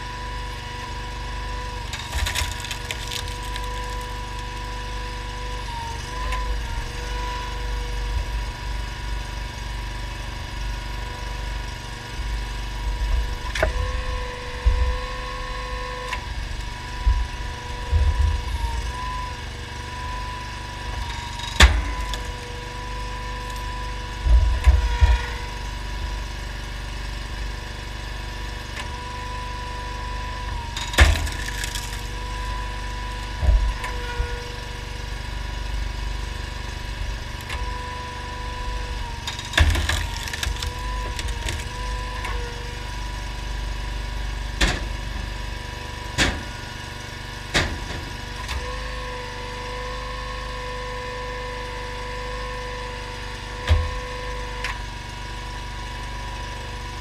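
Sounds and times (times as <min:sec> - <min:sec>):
engine running steadily: 0:00.0 - 0:57.0
hydraulic whine: 0:00.0 - 0:57.0
logs splitting with sharp cracks: 0:01.4 - 0:08.5, 0:20.7 - 0:22.5, 0:30.6 - 0:35.3, 0:39.2 - 0:42.5.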